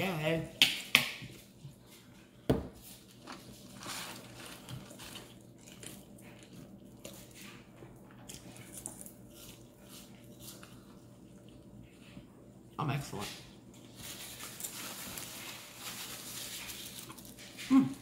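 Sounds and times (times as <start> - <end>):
carton rustling: 3.0 - 5.3
soft chewing with mouth clicks: 4.7 - 12.4.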